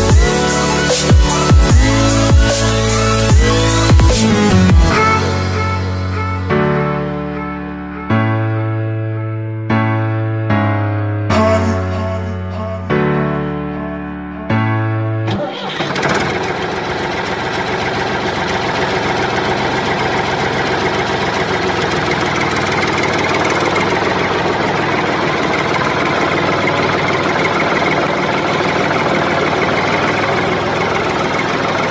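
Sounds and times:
motor running with rattling knock: 15.8 - 31.9.

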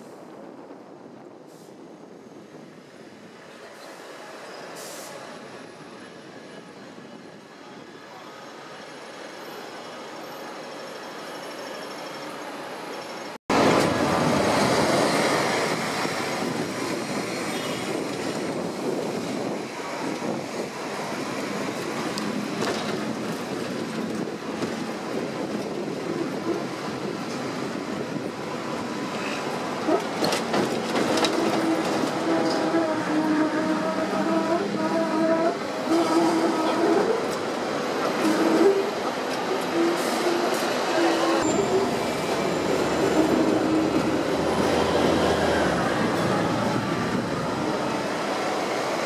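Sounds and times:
street traffic: 0.0 - 49.0
tram wheels rattling on rails: 2.4 - 49.0.

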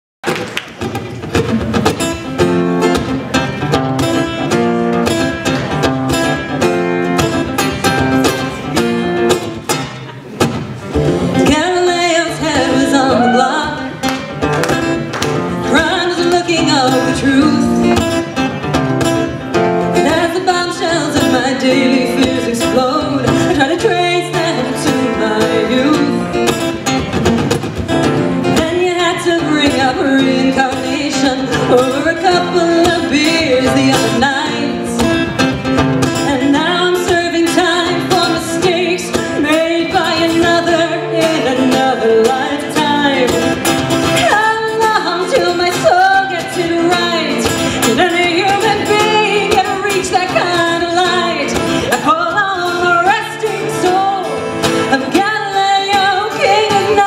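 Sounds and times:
acoustic guitar: 0.2 - 57.0
woman singing: 11.4 - 14.1, 15.6 - 18.2, 19.9 - 26.6, 28.4 - 35.3, 36.1 - 57.0.

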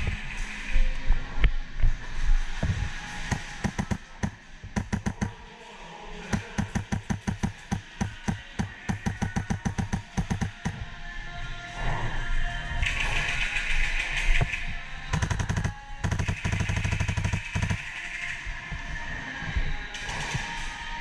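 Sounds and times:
airsoft rifle shots: 3.3 - 5.4, 6.4 - 10.8, 15.1 - 18.0.

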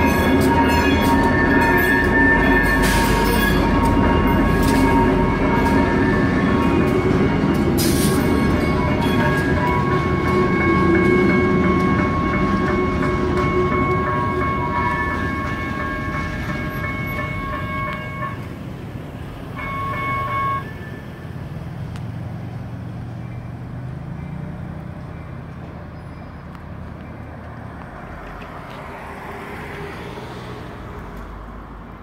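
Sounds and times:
train horn blasts: 0.0 - 18.5, 19.6 - 21.1
freight train rumble: 0.0 - 30.1.

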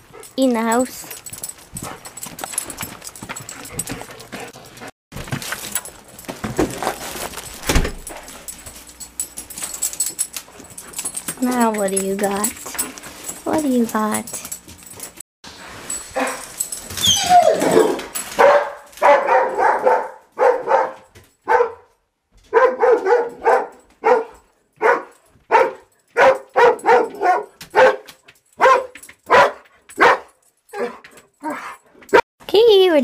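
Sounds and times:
dog whining: 16.2 - 18.1
dog barking: 17.4 - 21.9, 22.5 - 32.2.

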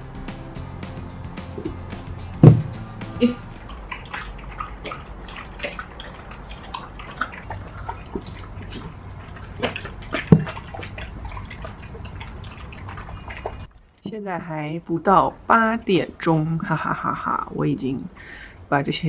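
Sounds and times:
dogs crunching kibble: 3.6 - 13.7.

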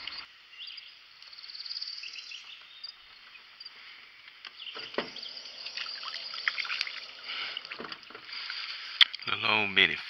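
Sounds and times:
faint bird chirps: 0.0 - 7.7
insect chirps: 0.0 - 9.1
fish splashing at water surface: 4.8 - 9.0.

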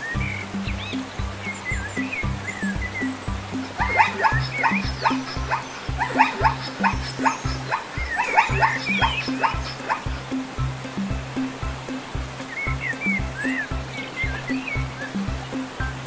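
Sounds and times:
music with bass beat: 0.0 - 16.0
zebra yelping barks: 3.8 - 10.1.

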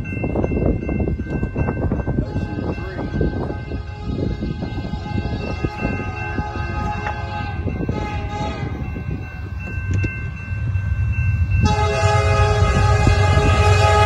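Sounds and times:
low rumble of train: 0.0 - 14.0
locomotive air horn chord: 2.3 - 8.8, 11.6 - 14.0.

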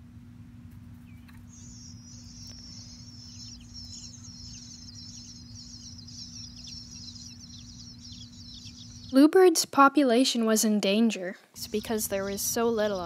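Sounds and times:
steady low hum: 0.0 - 9.4, 11.4 - 13.0
nestlings begging chatter: 1.2 - 9.3, 11.6 - 13.0.

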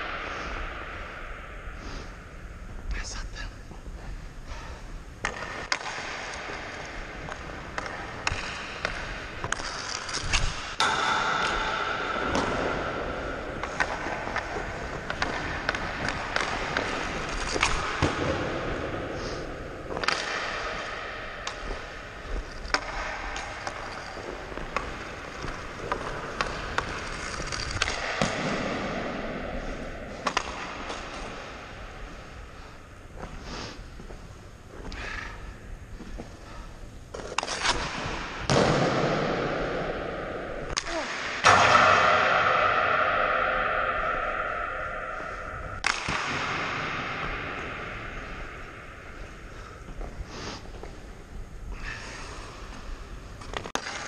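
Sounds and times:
hockey stick clacking on puck: 5.2 - 18.4, 19.9 - 28.8, 30.2 - 31.6, 45.8 - 46.5, 53.4 - 54.0
skates scraping across ice: 5.3 - 32.5.

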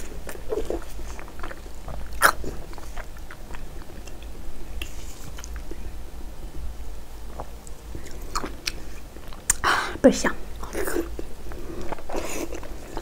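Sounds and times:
chewing with wet mouth smacks: 0.0 - 5.8, 7.4 - 9.6.

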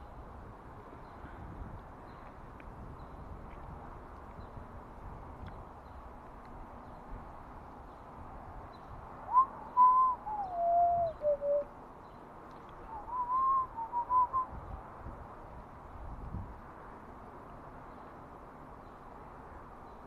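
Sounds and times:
person whistling a tune: 9.3 - 11.6, 12.9 - 14.5.

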